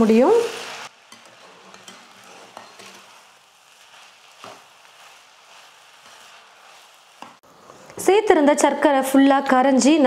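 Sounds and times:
rice and sugar sizzling: 0.0 - 7.7
steel spoon stirring: 0.7 - 7.4.

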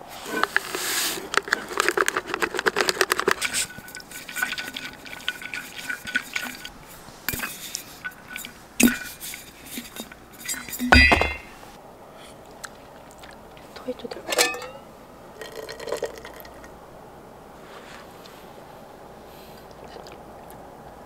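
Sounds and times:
powder poured from paper packet: 0.2 - 6.6
tumbler shaken with sloshing clinks: 1.3 - 11.5, 15.4 - 16.7.

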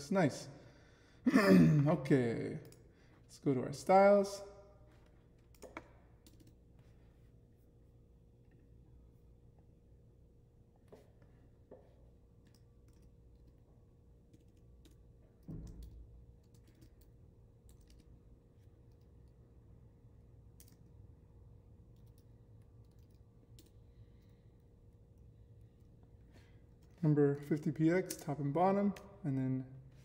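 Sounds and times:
steady low hum: 0.0 - 30.0
computer keyboard keystrokes: 5.5 - 6.6, 22.0 - 23.8.

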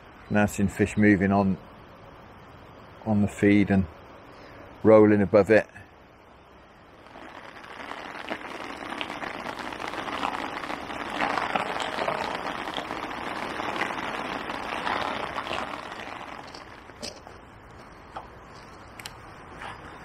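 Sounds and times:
rain shower falling: 7.1 - 17.2.

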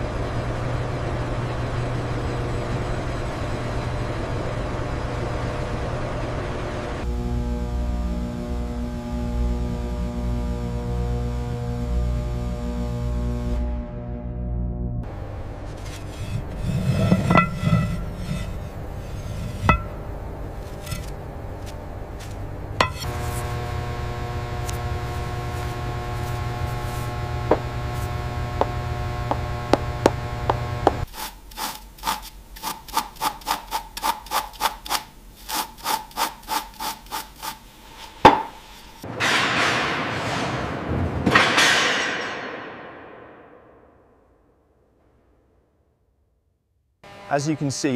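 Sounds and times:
scraping on rusty metal: 15.6 - 23.5.

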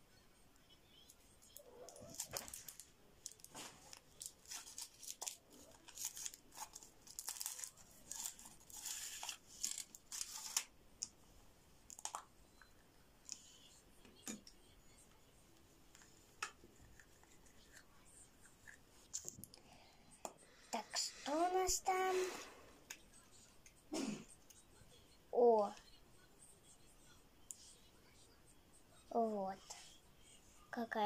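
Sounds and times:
foil wrapper crinkling: 2.1 - 10.7.

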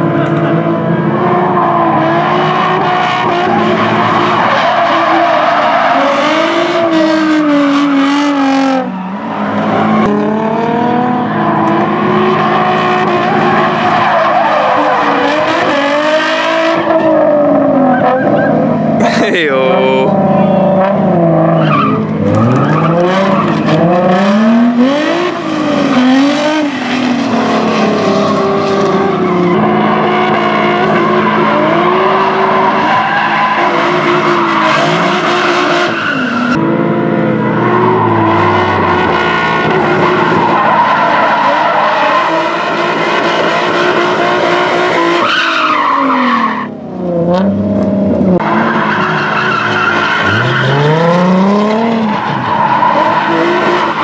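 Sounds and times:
car engine revving: 0.0 - 54.0
tyres squealing: 48.5 - 51.2.

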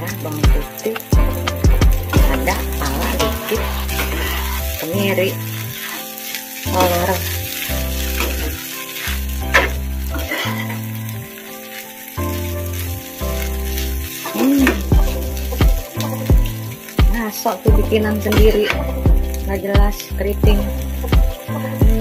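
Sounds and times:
background music with bass line: 0.0 - 5.9, 6.6 - 11.4, 12.2 - 22.0
noodles sizzling in frying pan: 0.0 - 22.0
metal spatula scraping pan: 1.6 - 10.9.

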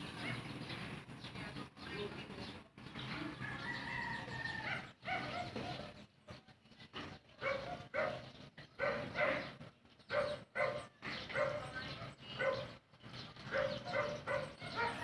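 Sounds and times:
dog barking: 0.2 - 0.5, 4.6 - 6.0, 7.4 - 9.5, 10.1 - 12.8, 13.5 - 15.0.

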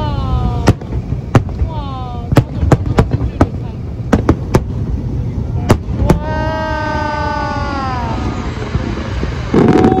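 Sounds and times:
firework shells bursting: 0.6 - 4.9.

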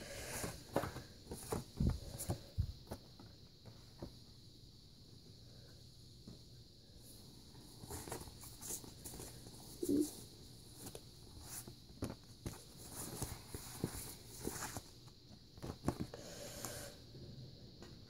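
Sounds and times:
paper handling knocks and rustles: 10.7 - 16.1.

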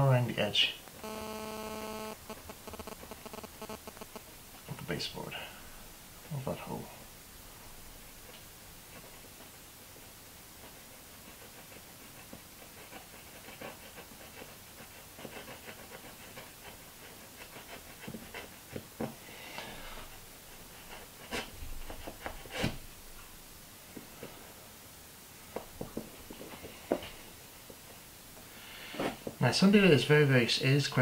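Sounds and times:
scalpel scratching board: 1.0 - 4.2, 10.7 - 19.2, 20.7 - 22.9.

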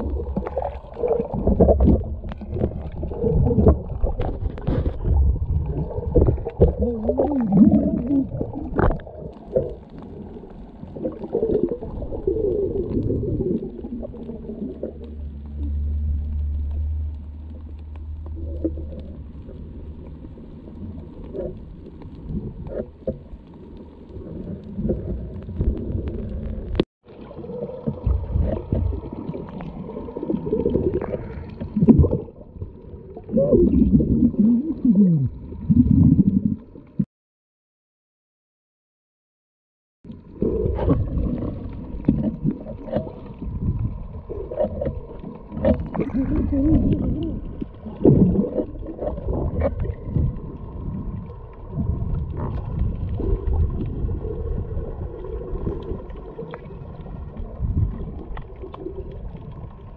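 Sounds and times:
underwater gurgling: 0.0 - 37.1, 40.1 - 59.9
underwater water rumbling: 0.0 - 37.1, 40.0 - 59.9.

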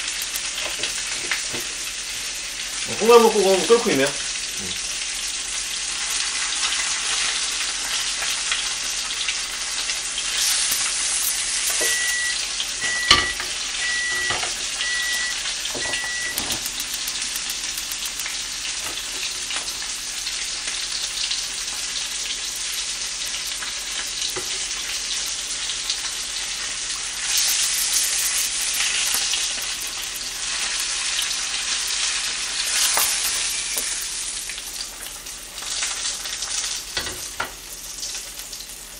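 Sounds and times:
fish sizzling in a pan: 0.0 - 38.9
short beeps: 11.7 - 16.4
sharp click: 16.2 - 18.4.

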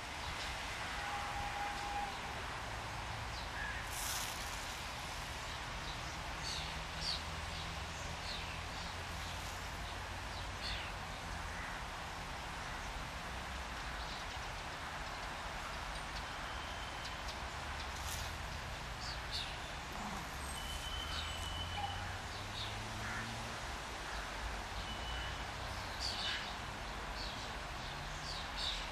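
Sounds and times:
outdoor hiss: 0.0 - 8.3
birds chirping: 19.0 - 23.3.

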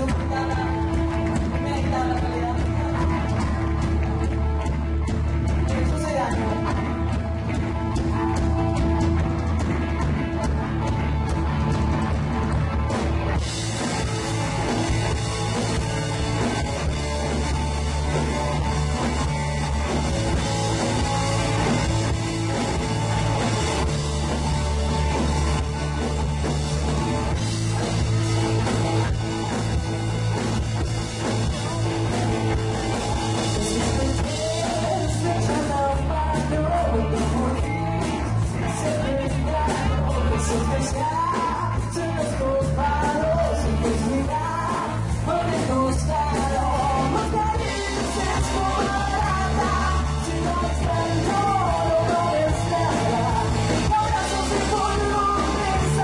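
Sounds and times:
live rock band with electric guitars: 0.0 - 56.0
woman singing: 33.6 - 56.0.

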